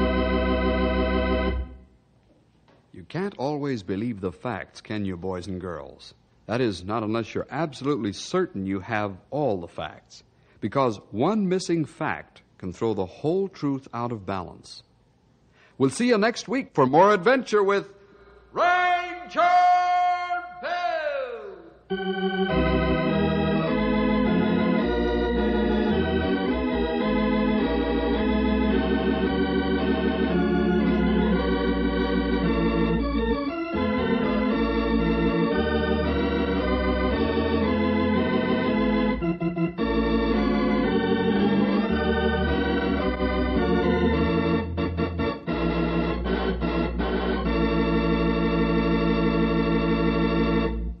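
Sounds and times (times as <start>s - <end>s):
organ playing sustained chords: 0.0s - 1.9s, 21.8s - 51.0s.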